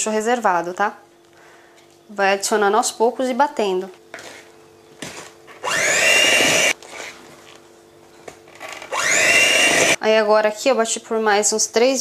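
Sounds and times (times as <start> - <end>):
electric hand mixer whining: 5.6 - 6.8, 8.9 - 10.0.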